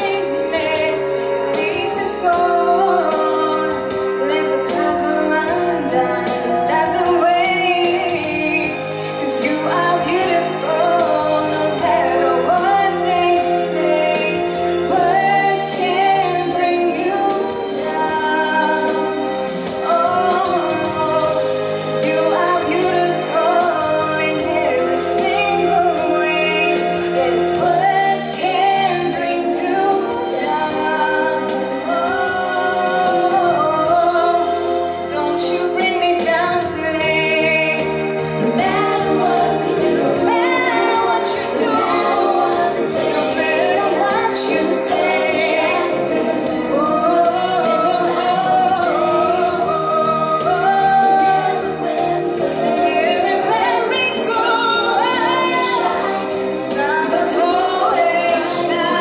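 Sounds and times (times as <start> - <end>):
instrumental accompaniment: 0.0 - 59.0
woman singing pop ballad: 0.0 - 59.0.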